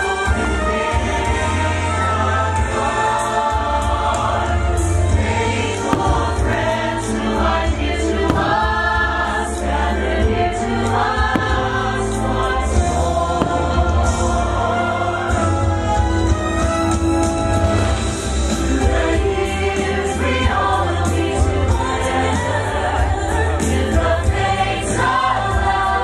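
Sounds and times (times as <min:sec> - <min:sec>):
choir singing long notes: 0:00.0 - 0:26.0
firework bangs: 0:05.6 - 0:09.8, 0:11.0 - 0:15.0.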